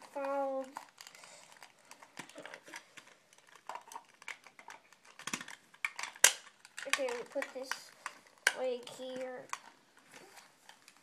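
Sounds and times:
plastic parts clicking: 0.0 - 11.0
loud plastic snap: 5.1 - 8.6.

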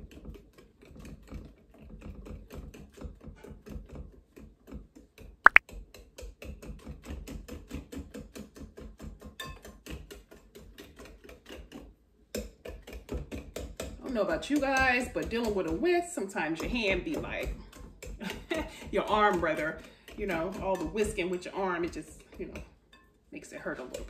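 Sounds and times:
whisk beating batter in glass bowl: 6.3 - 22.6, 23.4 - 24.0.

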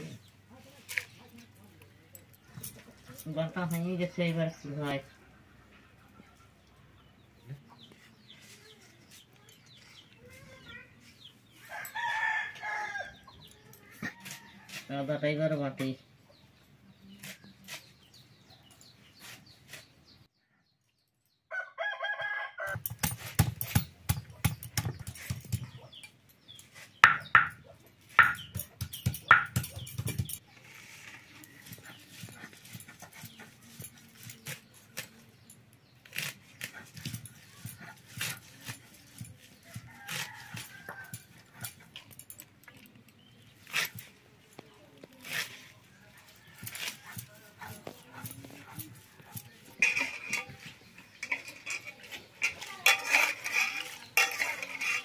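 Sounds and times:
rooster crowing: 21.5 - 22.8
blade snipping leaves: 28.1 - 35.4, 36.0 - 42.1, 42.7 - 55.0
leaves slapping in steel plate: 36.0 - 40.9, 45.0 - 55.0.

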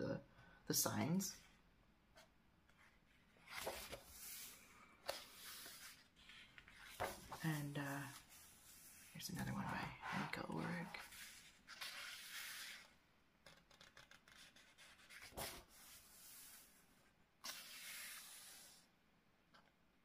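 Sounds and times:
paper rustling: 2.7 - 12.9, 13.5 - 16.8
page flap: 3.4 - 4.5.

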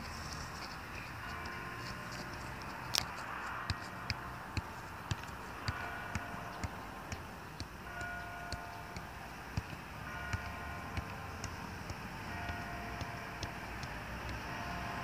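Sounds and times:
foot thumping soccer ball: 3.6 - 14.6.

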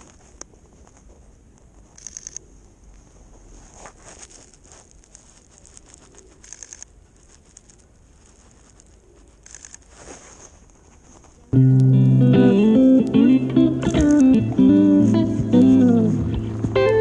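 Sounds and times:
soft clicks and rustling: 0.0 - 11.6.

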